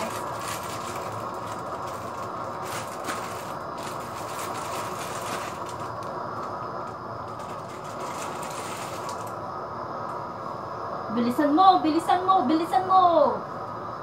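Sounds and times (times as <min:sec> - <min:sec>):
rushing kitchen noise: 0:00.0 - 0:10.4.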